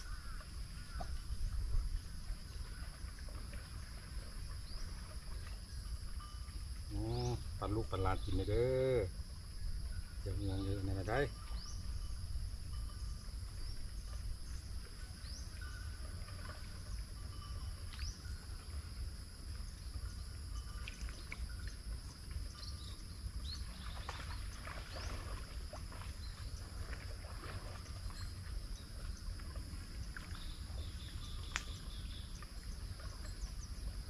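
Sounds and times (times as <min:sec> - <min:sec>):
wind rumble on microphone: 0:00.0 - 0:34.0
bird chirps: 0:10.2 - 0:12.2.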